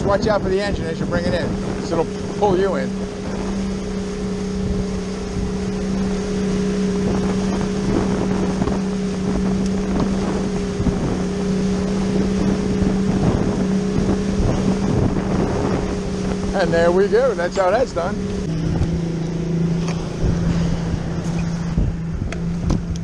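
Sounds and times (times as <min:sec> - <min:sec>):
outboard motor humming: 0:00.0 - 0:23.0
wind buffeting microphone: 0:00.0 - 0:23.0.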